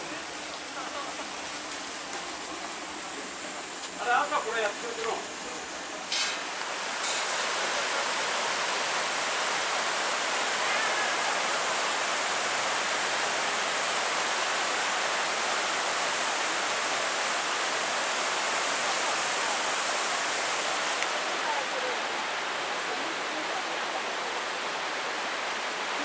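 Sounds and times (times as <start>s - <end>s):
stream rushing: 0.0s - 26.0s.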